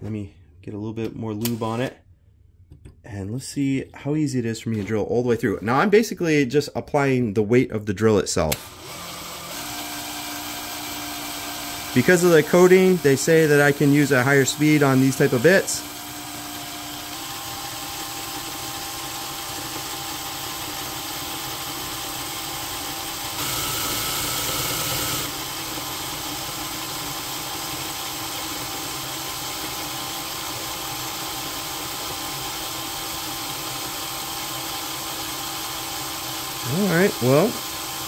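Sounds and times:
cordless drill motor running: 8.5s - 38.0s
drill bit cutting into steel: 8.5s - 38.0s.

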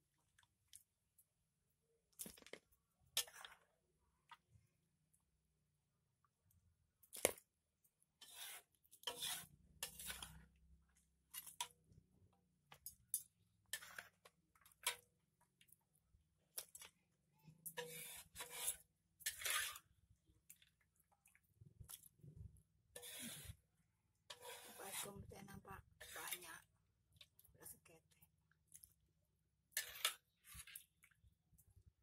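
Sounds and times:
metal utensil scraping a wok: 8.2s - 10.6s, 13.6s - 14.2s, 17.6s - 20.0s, 22.9s - 26.6s, 29.7s - 30.8s.

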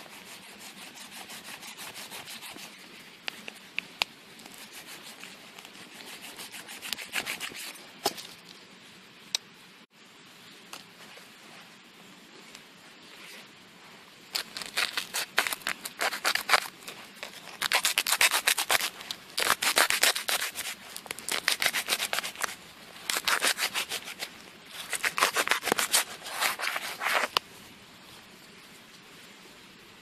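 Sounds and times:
machete scraping plastic bottle: 14.4s - 27.4s.

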